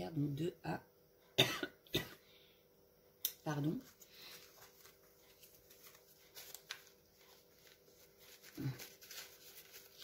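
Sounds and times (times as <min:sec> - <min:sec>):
paper pages rustling: 0:03.8 - 0:10.0.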